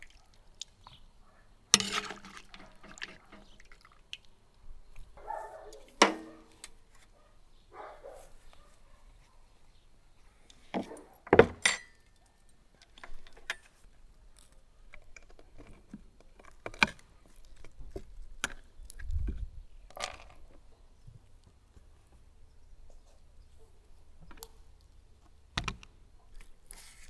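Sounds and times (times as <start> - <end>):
tableware clinking: 11.6 - 12.0.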